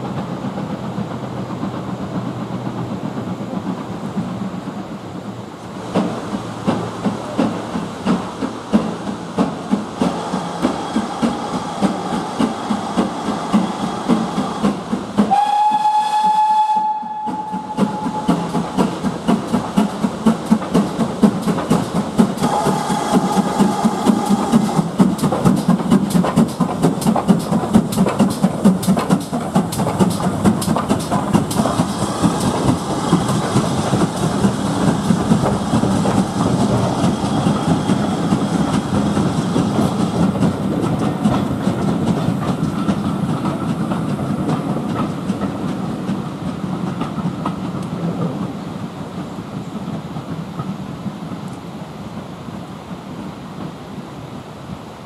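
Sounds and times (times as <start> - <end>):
steam locomotive exhaust beating: 0.0 - 55.0
steam whistle: 15.3 - 18.6, 22.4 - 24.7.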